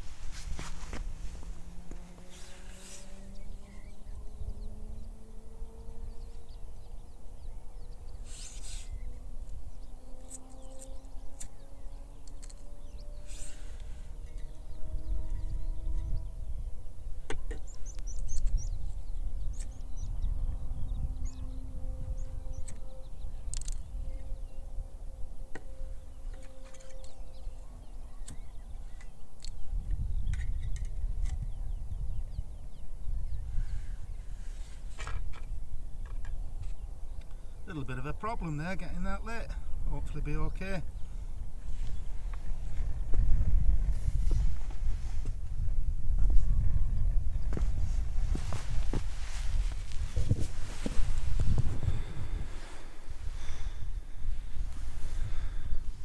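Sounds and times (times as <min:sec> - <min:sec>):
rustle: 0:00.0 - 0:14.6, 0:33.4 - 0:37.6, 0:40.9 - 0:46.7, 0:47.3 - 0:56.0
wind rumbling on microphone: 0:00.0 - 0:37.7, 0:38.8 - 0:56.0
birds chirping faintly: 0:00.0 - 0:56.0.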